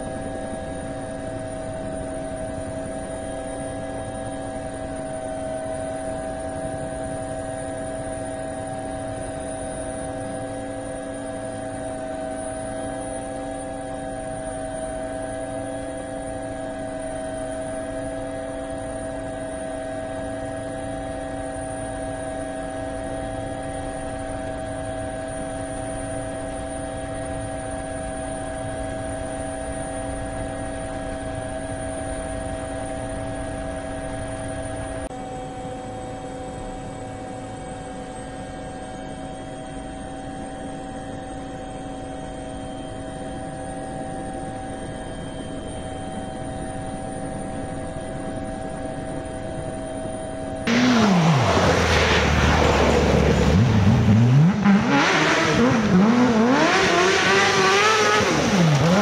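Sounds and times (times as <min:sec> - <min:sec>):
drone propellers whining: 0:44.8 - 0:59.0.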